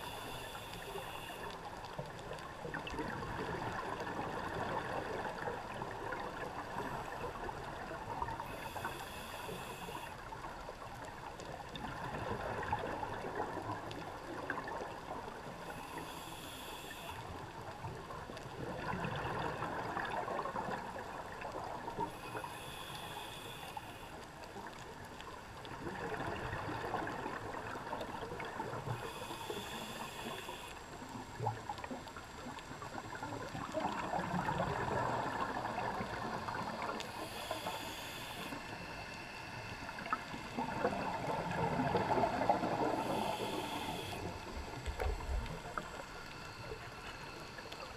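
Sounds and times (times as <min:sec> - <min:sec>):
hissing regulator inhales: 0:00.0 - 0:01.5, 0:08.4 - 0:10.2, 0:15.7 - 0:17.3, 0:22.1 - 0:24.2, 0:28.9 - 0:30.8, 0:37.0 - 0:39.5, 0:42.7 - 0:44.4
gurgling exhaled bubbles: 0:18.5 - 0:21.8, 0:32.8 - 0:37.4, 0:39.9 - 0:46.7.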